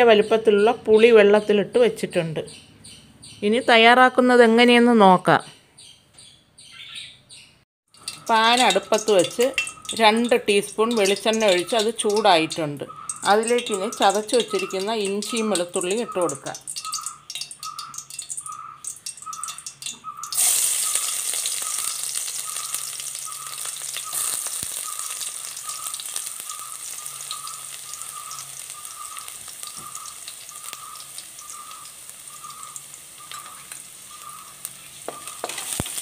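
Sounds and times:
garlic sizzling in hot oil: 7.9 - 36.0.

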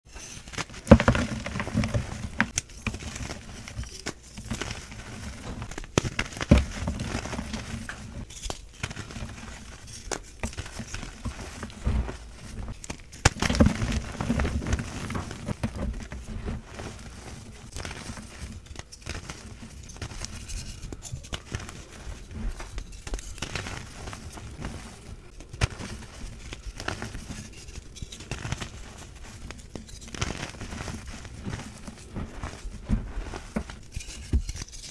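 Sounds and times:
chalk crunching and crackling: 0.1 - 34.9.

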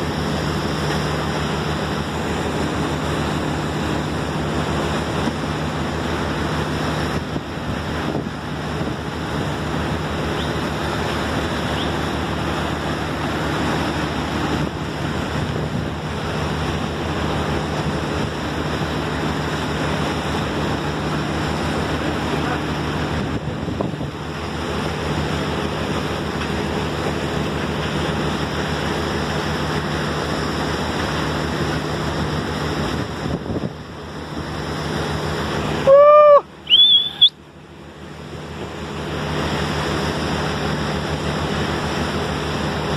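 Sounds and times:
boat motor humming: 0.0 - 42.9
water rushing past boat: 0.0 - 42.9
wind on microphone: 6.8 - 10.4, 22.8 - 24.3, 32.8 - 34.0
loud pitched call: 35.8 - 37.3
short high squeak: 36.7 - 37.4.

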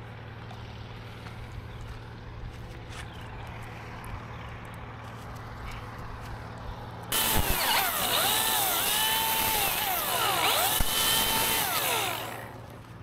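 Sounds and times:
chainsaw cutting wood: 7.1 - 13.0.

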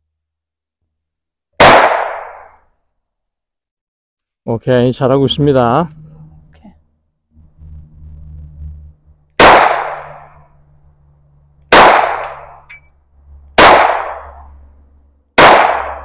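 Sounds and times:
pistol shots: 1.6 - 2.6, 9.4 - 10.3, 11.7 - 12.6, 13.6 - 14.5, 15.4 - 16.0.

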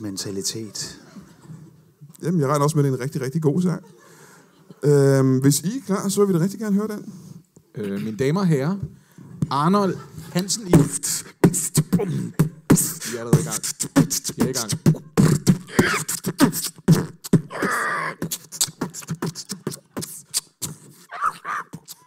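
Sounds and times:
human beatboxing: 10.6 - 22.0.

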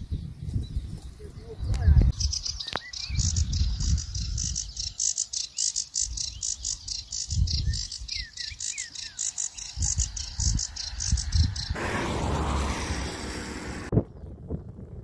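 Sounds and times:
wind rumble on microphone: 0.0 - 5.0, 6.0 - 8.4, 9.6 - 15.0
small birds chirping: 0.0 - 11.8.

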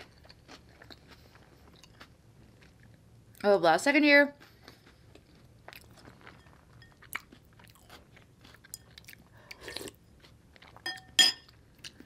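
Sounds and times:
metal spoon clinking on glass bowl: 10.8 - 11.5.

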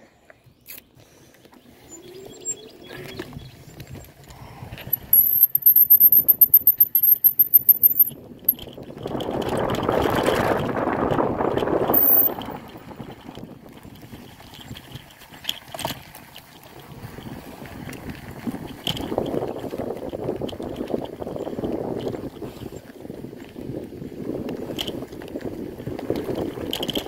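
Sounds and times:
fast even ticking: 5.0 - 8.1
bike frame rattle: 5.0 - 13.4
bike tyres crunching on dirt: 8.8 - 27.0.

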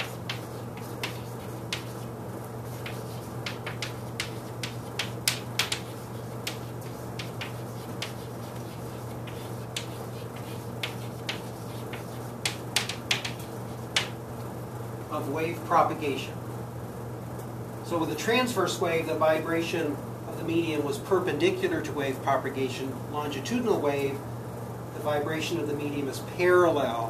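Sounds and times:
chalk tapping on a chalkboard: 0.0 - 2.1, 2.7 - 14.2
steady low hum: 0.0 - 27.0.

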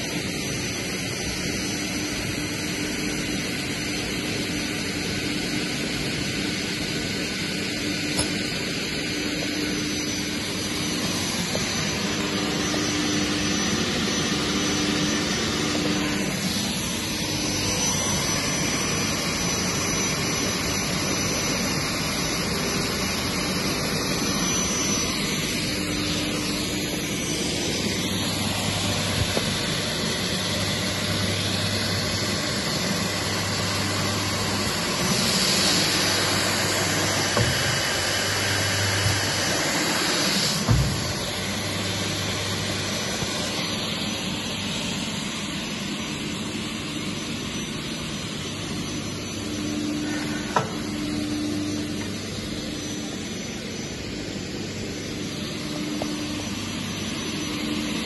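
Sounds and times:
saw blades whirring: 0.1 - 58.0.

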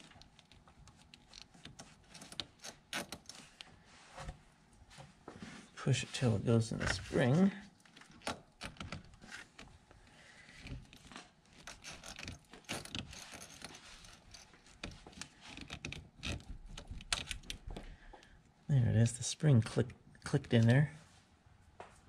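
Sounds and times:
faint metal clicks and scrapes: 0.0 - 4.4, 10.4 - 18.3.

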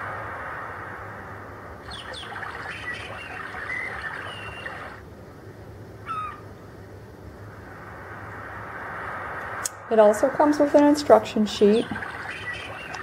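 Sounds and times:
steady hiss: 0.0 - 13.0
recorded birdsong chirps: 1.8 - 5.0, 6.0 - 6.8, 11.5 - 13.0.

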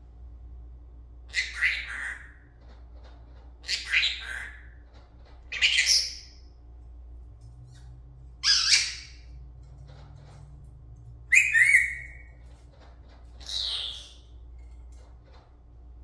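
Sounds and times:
parrot squawking: 1.3 - 2.5, 3.6 - 4.8, 5.5 - 6.4, 8.4 - 9.4, 11.3 - 12.4, 13.4 - 14.4.

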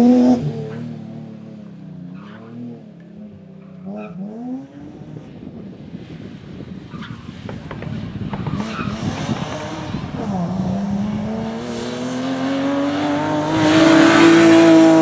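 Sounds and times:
rally car engine revving: 0.0 - 1.6, 6.9 - 15.0.

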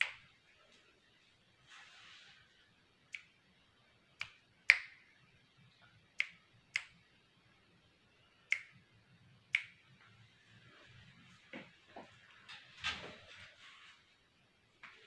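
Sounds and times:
finger snaps: 0.0 - 0.2, 3.1 - 3.4, 4.2 - 5.1, 6.1 - 7.0, 8.5 - 8.8, 9.4 - 9.9.

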